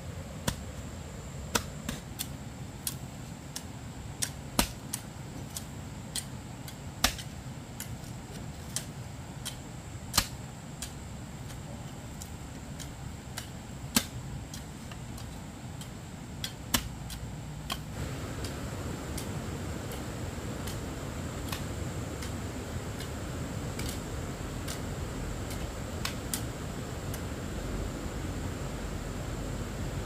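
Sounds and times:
faint high whine: 0.0s - 4.0s, 17.5s - 30.0s
low background hum: 0.0s - 30.0s.

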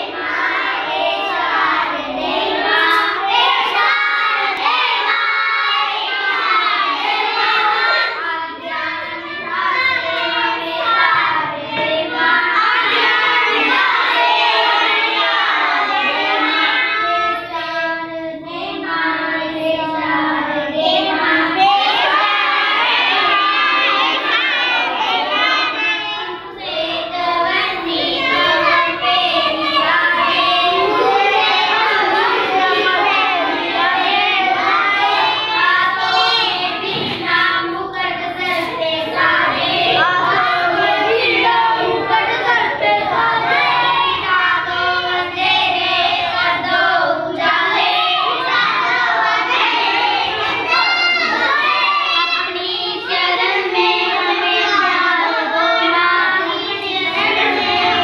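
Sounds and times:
children singing a prayer: 0.0s - 58.0s.

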